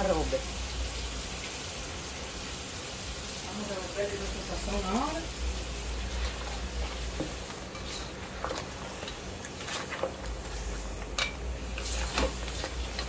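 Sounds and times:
spatula stirring thick stew: 5.7 - 13.0.

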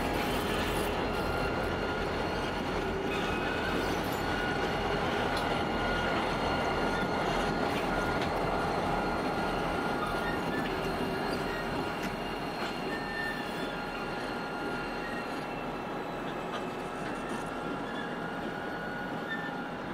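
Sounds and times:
high squeal of wheels on rails: 0.0 - 19.9.

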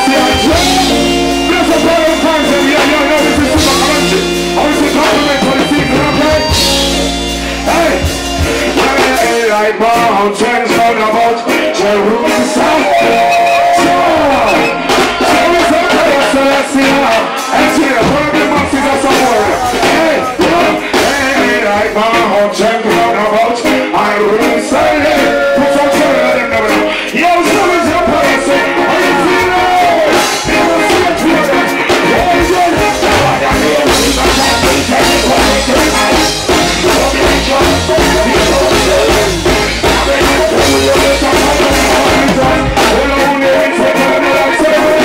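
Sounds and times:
heavy bass line: 0.0 - 9.9, 24.8 - 45.0
live reggae band: 0.0 - 45.0
man singing into a microphone: 0.0 - 45.0.

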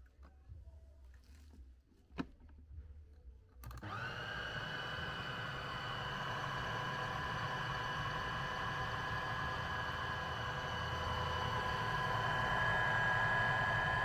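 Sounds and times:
food processor motor whining: 3.7 - 14.0.

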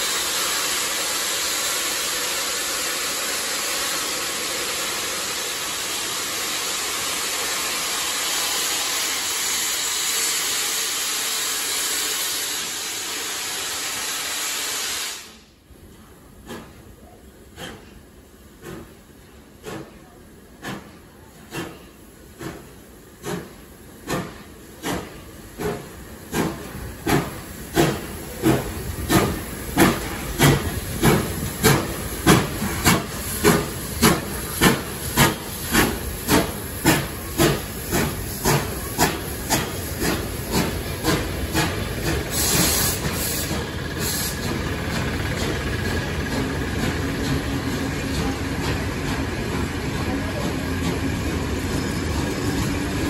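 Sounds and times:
steam hissing: 0.0 - 53.0
locomotive exhaust beats: 18.6 - 52.6.

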